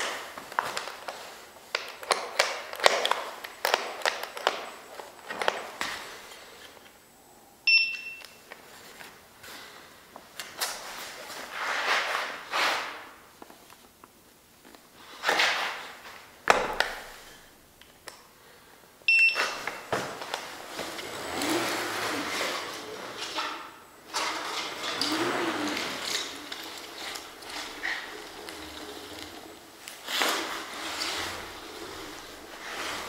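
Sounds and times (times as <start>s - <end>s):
handling and shuffling noises: 0.0s - 7.0s, 8.2s - 17.6s, 19.3s - 33.0s
short electronic beeps: 7.7s - 8.4s, 19.1s - 19.6s.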